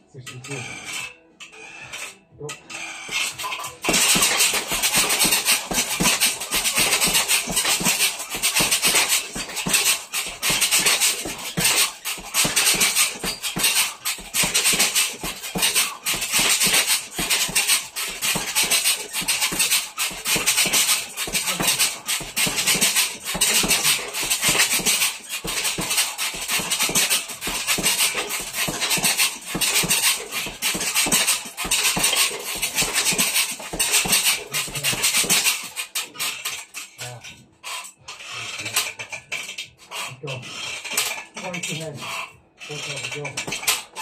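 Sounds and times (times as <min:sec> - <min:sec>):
punches thudding on heavy bag: 0:03.1 - 0:36.5, 0:43.4 - 0:44.0.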